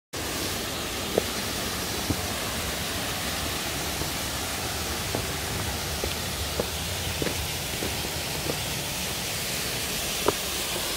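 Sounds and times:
rush of falling water: 0:00.2 - 0:10.9.

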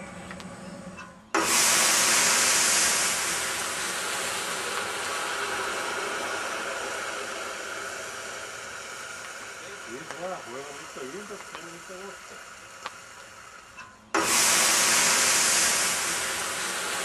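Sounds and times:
burning oil erupting whoosh: 0:01.3 - 0:10.7, 0:14.2 - 0:17.0
steam hiss: 0:01.3 - 0:17.0.

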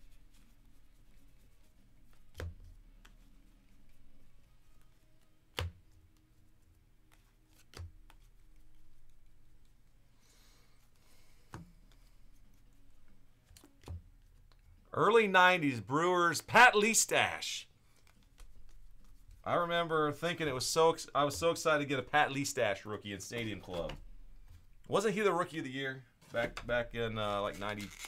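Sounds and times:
papery sliding of cards: 0:00.0 - 0:05.2, 0:26.2 - 0:28.0
cards tapped on tabletop: 0:05.5 - 0:05.9.

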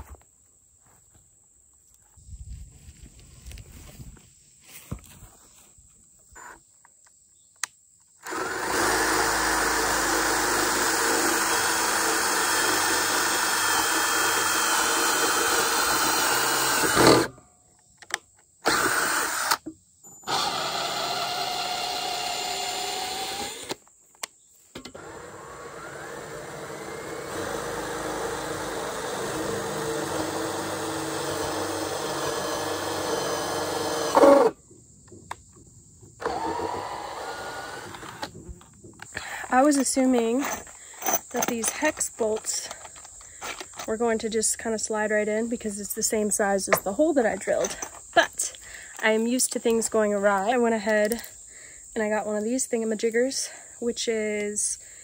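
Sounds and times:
cordless drill boring wood: 0:08.2 - 0:17.3, 0:18.6 - 0:23.8, 0:24.8 - 0:34.6, 0:36.2 - 0:38.4.

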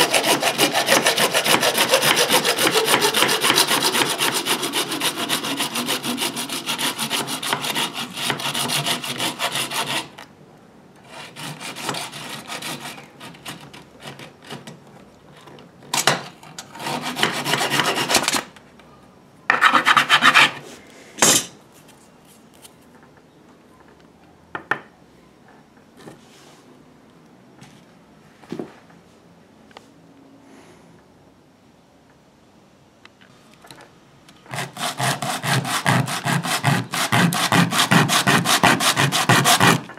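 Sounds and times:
hacksaw cutting plastic pipe: 0:00.0 - 0:10.3, 0:11.0 - 0:14.7, 0:16.6 - 0:18.5, 0:34.4 - 0:39.9.

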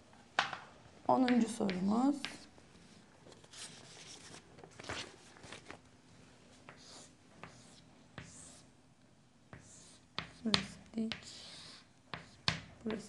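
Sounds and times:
chalk scratching on chalkboard: 0:06.7 - 0:08.7, 0:09.5 - 0:13.0.

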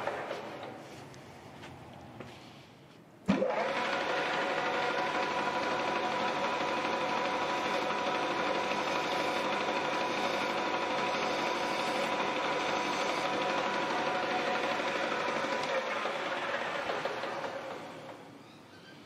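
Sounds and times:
lathe motor spinning: 0:03.3 - 0:18.4.

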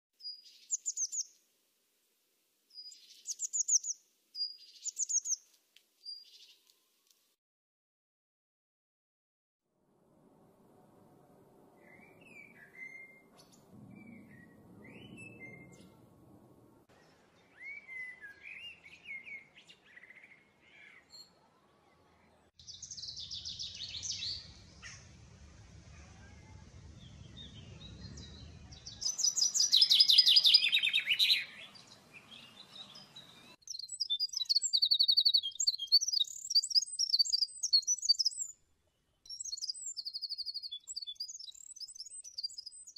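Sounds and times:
chaffinch singing: 0:02.8 - 0:05.4, 0:27.0 - 0:38.6, 0:39.3 - 0:42.9
wren trilling song: 0:02.8 - 0:05.4, 0:27.3 - 0:38.6, 0:39.3 - 0:42.9.

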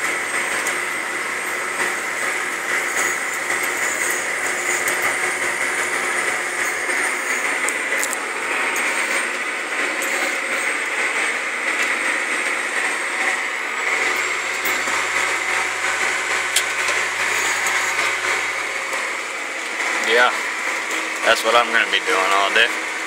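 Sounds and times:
tractor engine running: 0:00.0 - 0:23.0.

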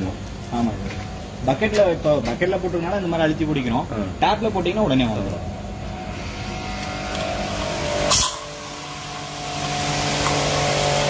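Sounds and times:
pressure washer motor humming: 0:05.3 - 0:11.0
water jet hissing: 0:07.4 - 0:11.0
short sharp burst: 0:08.0 - 0:09.1.

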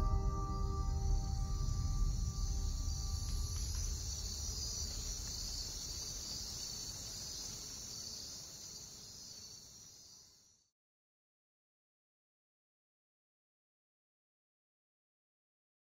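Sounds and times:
low rumble: 0:00.0 - 0:06.1
insect chorus: 0:00.0 - 0:10.7.

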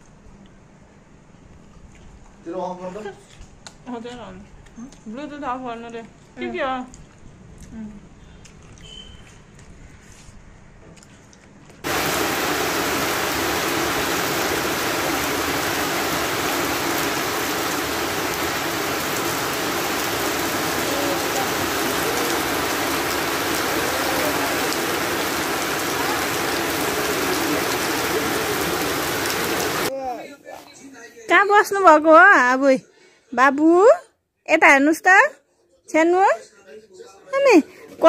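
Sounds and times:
rain pouring: 0:11.8 - 0:29.9.

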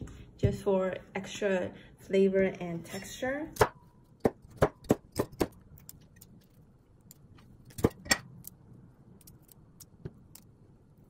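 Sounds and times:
knife chopping on wooden board: 0:03.6 - 0:05.6.

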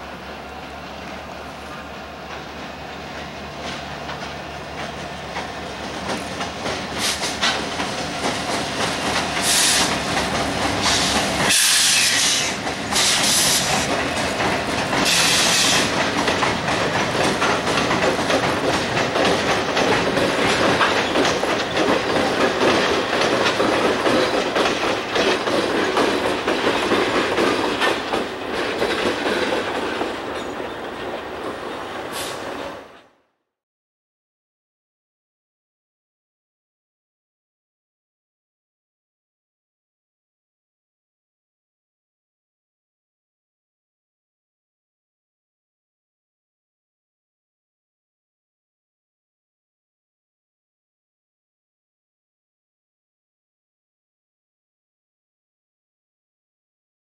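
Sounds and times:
diesel locomotive engines running: 0:00.0 - 0:33.1
train wheels clacking over rails: 0:00.0 - 0:33.1.

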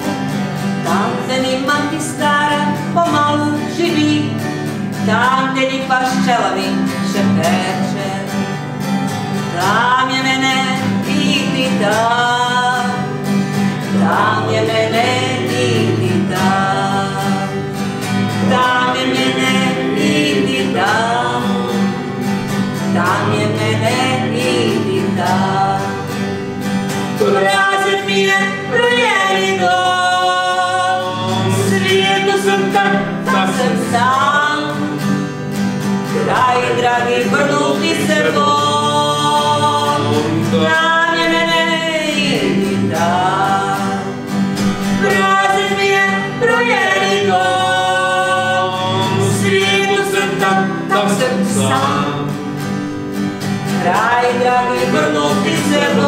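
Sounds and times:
acoustic guitar: 0:00.0 - 0:56.0
woman singing long notes: 0:00.9 - 0:04.3, 0:22.9 - 0:26.0, 0:27.2 - 0:35.0, 0:45.0 - 0:52.3, 0:53.8 - 0:56.0.

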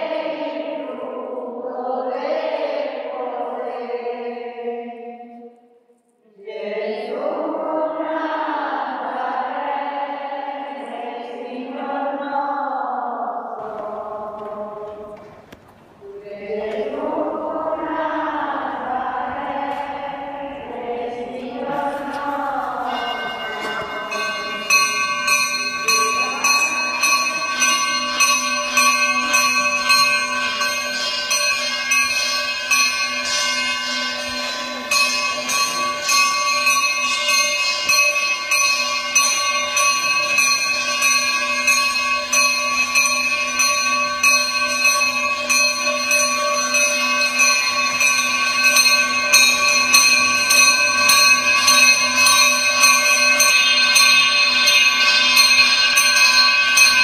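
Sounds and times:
bells ringing: 0:19.0 - 0:57.0.

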